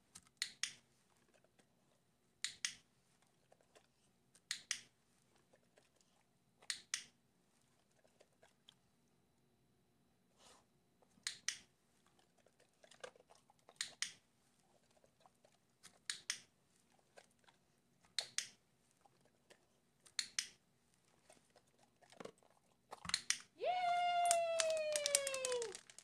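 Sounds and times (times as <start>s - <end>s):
dog eating treats: 1.2s - 2.0s, 3.2s - 4.5s, 12.0s - 14.0s, 16.8s - 18.4s, 19.0s - 20.2s, 21.1s - 26.0s.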